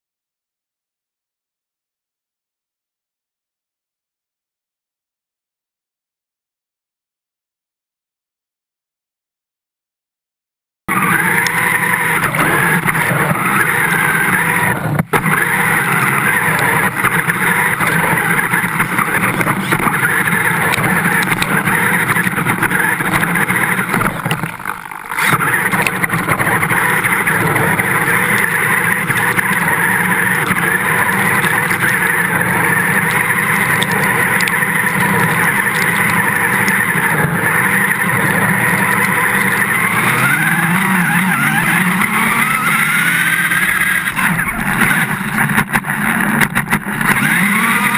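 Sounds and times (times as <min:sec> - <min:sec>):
rc vehicle motor running: 0:10.9 - 0:47.9.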